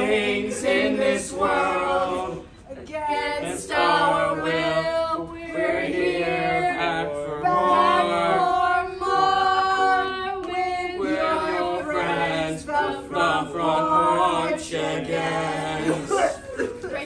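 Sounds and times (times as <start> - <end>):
group of voices singing: 0.0 - 16.8.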